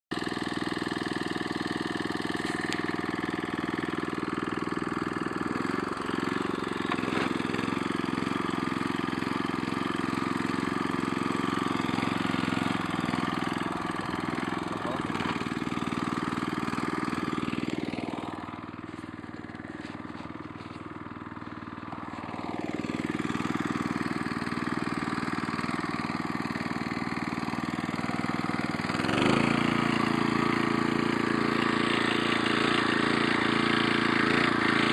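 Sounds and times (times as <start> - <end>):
small petrol engine running: 0.1 - 34.9.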